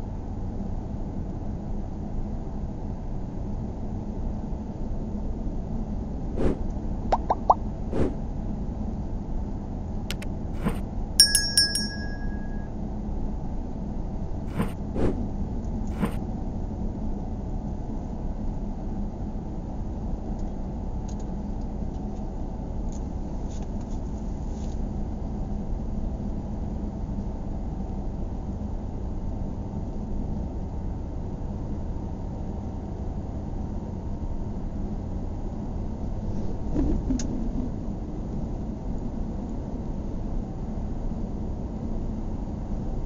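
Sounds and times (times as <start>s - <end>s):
car road and engine noise: 10.1s - 12.7s, 14.4s - 16.2s
high ringing chime: 11.2s - 12.7s.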